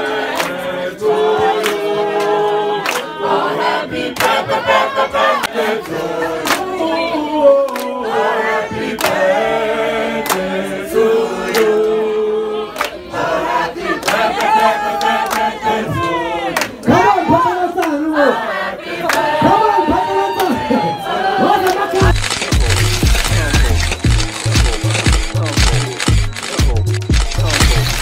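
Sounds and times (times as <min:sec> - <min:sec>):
crowd singing together: 0:00.0 - 0:28.0
sharp claps: 0:09.0 - 0:09.2.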